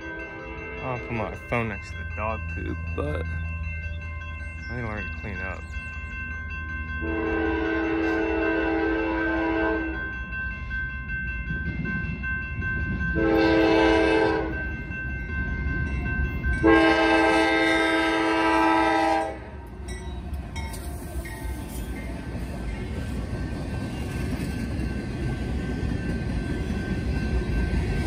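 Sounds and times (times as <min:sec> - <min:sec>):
low train rumble: 0:00.0 - 0:28.0
locomotive air horn blasts: 0:07.0 - 0:10.0, 0:13.2 - 0:14.6, 0:16.6 - 0:19.5.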